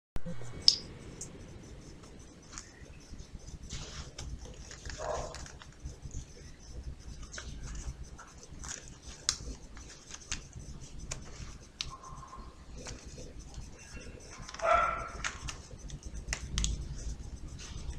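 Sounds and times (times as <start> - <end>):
paper clicks and rustles: 3.7 - 5.8, 14.5 - 15.7.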